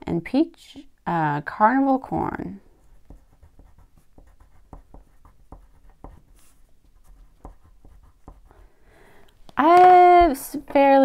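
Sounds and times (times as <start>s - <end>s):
wax crayon rubbing on paper: 2.7s - 8.7s.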